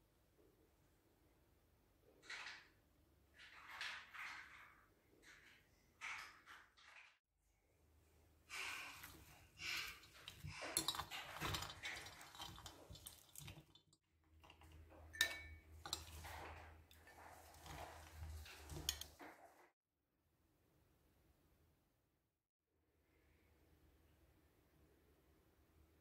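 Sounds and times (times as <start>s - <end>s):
forks scraping and clinking bowl: 8.9s - 13.8s, 14.4s - 19.5s
spoon clinking glass cup: 10.2s - 13.6s, 14.4s - 16.2s.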